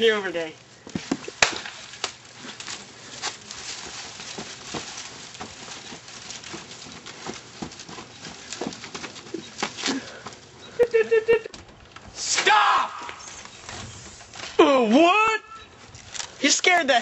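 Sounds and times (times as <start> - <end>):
steady outdoor hiss: 0.0 - 17.0
scuffs and steps on grass: 0.9 - 10.5.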